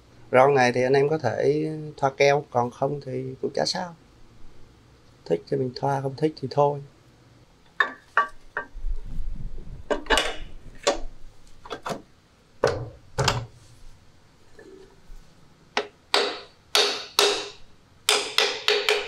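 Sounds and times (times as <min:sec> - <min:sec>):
hammer tapping: 0:07.8 - 0:08.7, 0:15.8 - 0:19.0.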